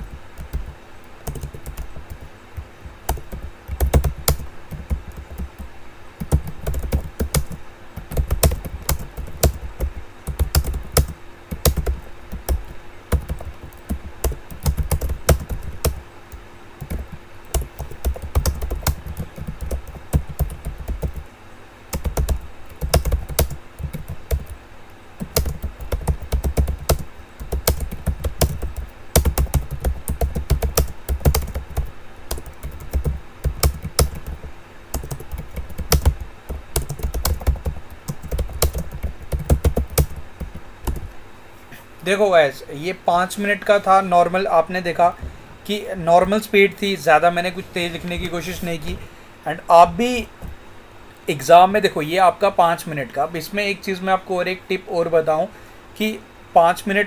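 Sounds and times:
keyboard typing: 0.0 - 21.3, 21.9 - 24.6, 25.2 - 41.1.

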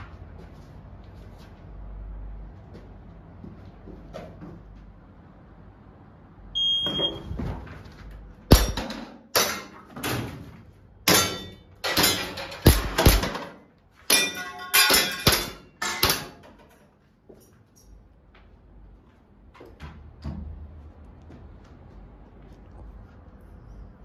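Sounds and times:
shot timer beep: 6.6 - 7.3
pellets clanging on steel plates: 8.5 - 9.9, 11.1 - 16.8.

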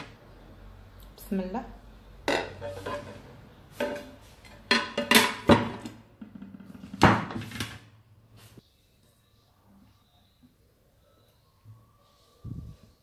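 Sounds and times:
dishes knocking on metal tray: 3.8 - 7.4.

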